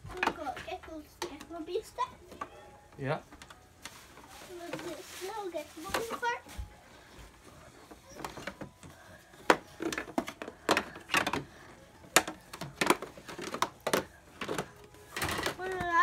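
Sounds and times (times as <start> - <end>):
plastic toy parts clacking: 9.5 - 16.0.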